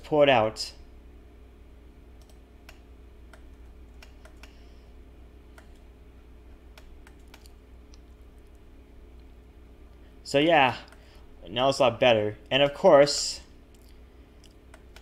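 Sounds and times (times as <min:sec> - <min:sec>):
low electrical hum: 0:00.0 - 0:15.0
keyboard and mouse clicking: 0:02.2 - 0:04.6, 0:05.5 - 0:05.8, 0:06.7 - 0:08.0, 0:13.7 - 0:15.0.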